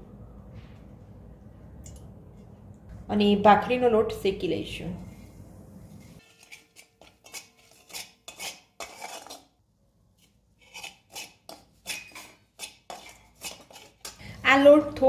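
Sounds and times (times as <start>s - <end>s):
metal spatula scraping iron pan: 6.0s - 9.6s, 10.2s - 14.4s.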